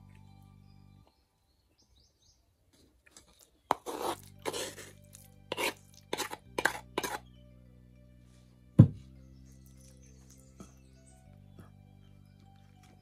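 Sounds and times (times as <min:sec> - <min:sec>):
wooden spoon scraping a pot: 0:03.7 - 0:07.3.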